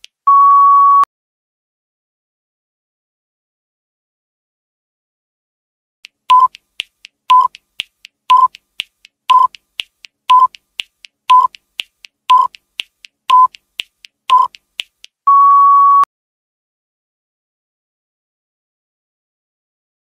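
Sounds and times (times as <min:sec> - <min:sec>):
electronic timer beeps: 0:00.3 - 0:01.1, 0:06.3 - 0:06.6, 0:07.3 - 0:07.6, 0:08.3 - 0:08.6, 0:09.3 - 0:09.6, 0:10.3 - 0:10.6, 0:11.3 - 0:11.6, 0:12.3 - 0:12.6, 0:13.3 - 0:13.6, 0:14.3 - 0:14.6, 0:15.3 - 0:16.1
long higher beep: 0:00.3 - 0:01.1, 0:15.3 - 0:16.1.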